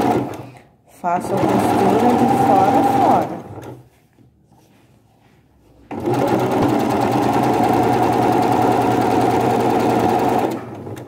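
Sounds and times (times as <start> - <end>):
sewing machine running: 0.0 - 0.5, 1.2 - 3.8, 5.9 - 11.0.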